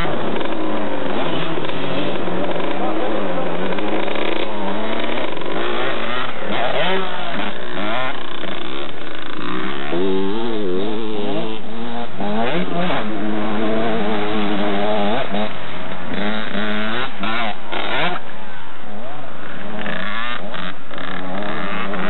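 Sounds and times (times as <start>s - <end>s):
motocross bike engines revving: 0.0s - 22.0s.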